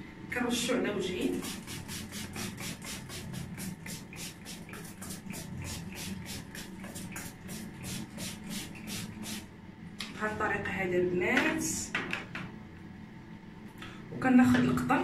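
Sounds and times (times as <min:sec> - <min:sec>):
spray bottle hissing sprays: 0:01.3 - 0:09.5.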